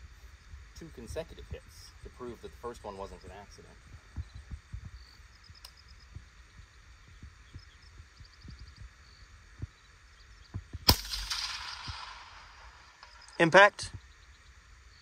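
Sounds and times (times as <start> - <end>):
soft low thumps: 3.4 - 10.9
rifle shot: 10.8 - 13.4
faint high chirps: 12.3 - 15.0.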